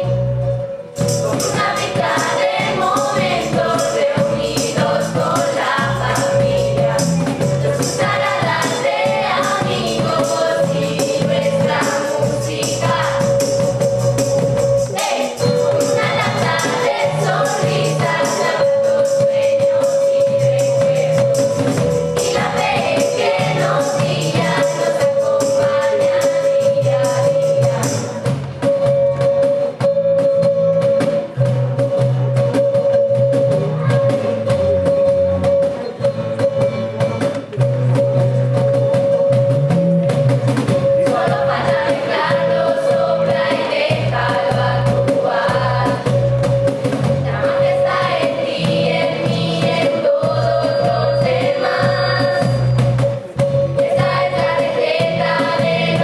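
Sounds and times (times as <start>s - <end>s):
instrumental backing with bass: 0.0s - 56.0s
steady held tone: 0.0s - 56.0s
group of voices singing: 1.2s - 14.1s, 14.9s - 28.3s, 40.8s - 52.8s, 53.7s - 56.0s.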